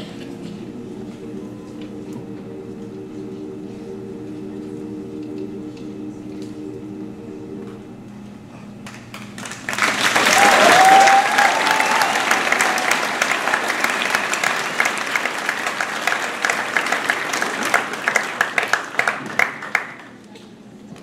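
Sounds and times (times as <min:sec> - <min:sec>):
audience applauding: 0:08.8 - 0:20.2
person whooping: 0:10.2 - 0:14.4.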